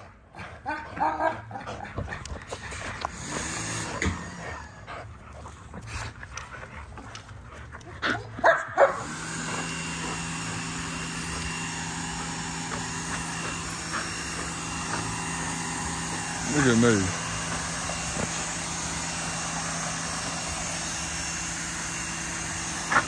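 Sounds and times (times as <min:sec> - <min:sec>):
dog growling while tugging: 0:00.0 - 0:08.4
dog barking loudly: 0:00.6 - 0:01.8, 0:08.4 - 0:09.3.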